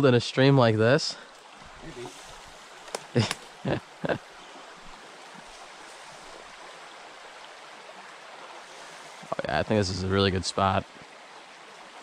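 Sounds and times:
stream water running: 0.0s - 12.0s.

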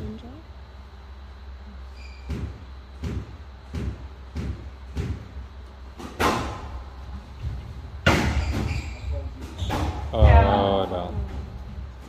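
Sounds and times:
squash ball thwacks: 2.3s - 5.4s, 6.0s - 6.8s, 8.0s - 8.7s.

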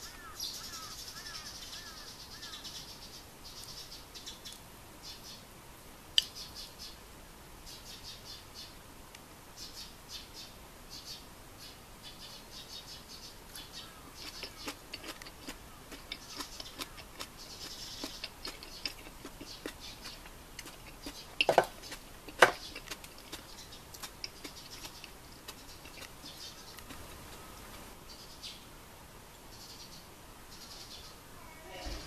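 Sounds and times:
stew simmering with pops: 13.5s - 27.9s.

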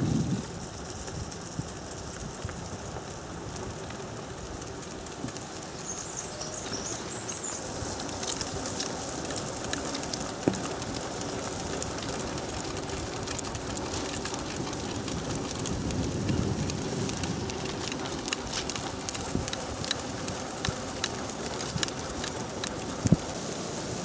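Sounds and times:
wheels hissing on wet road: 0.0s - 24.0s
dogs' paws pattering: 0.1s - 23.7s
small clicks from scooter rig: 0.4s - 23.4s.

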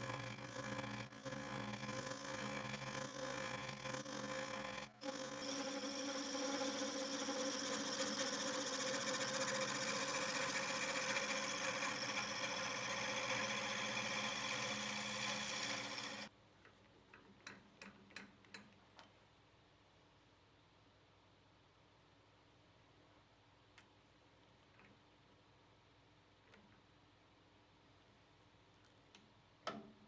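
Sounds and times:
lathe motor whine: 0.1s - 16.3s.

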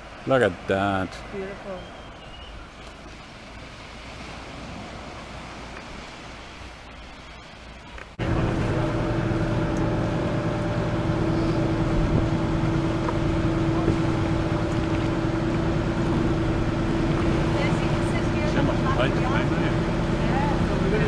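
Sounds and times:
faint wind: 0.0s - 21.0s
boat engine running: 4.5s - 21.0s.

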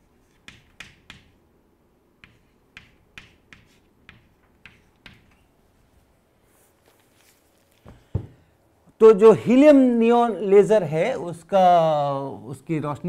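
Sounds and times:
chalk tapping on blackboard: 0.2s - 1.4s, 2.2s - 5.5s.

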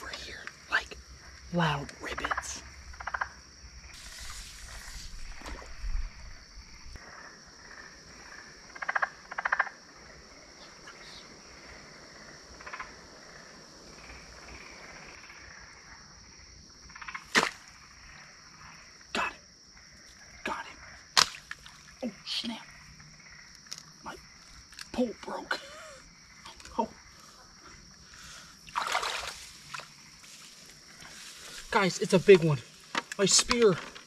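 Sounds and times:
frog croaking: 0.0s - 34.0s
insects trilling: 0.0s - 34.0s
sharp cracks: 17.2s - 17.7s, 21.1s - 21.8s.

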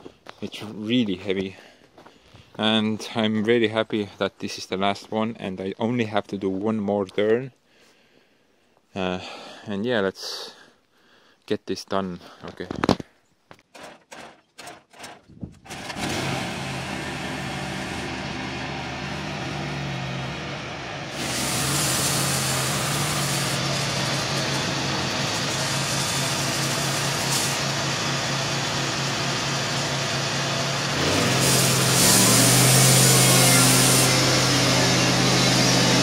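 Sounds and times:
engine sputtering and running: 15.6s - 36.0s
band blade cutting wood hiss: 21.2s - 27.7s, 31.0s - 36.0s.

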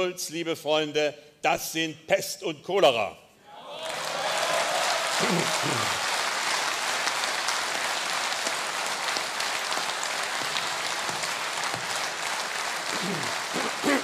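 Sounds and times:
audience applauding: 3.7s - 14.0s.

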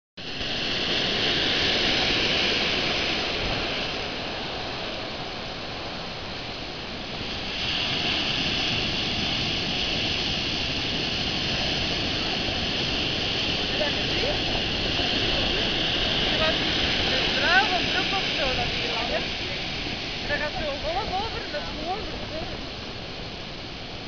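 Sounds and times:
ocean surf breaking: 0.2s - 24.0s.

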